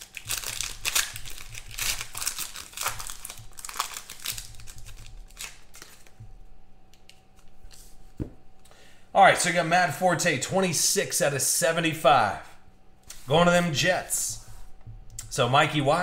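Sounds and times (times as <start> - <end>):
foil wrapper crinkling: 0.0 - 6.2.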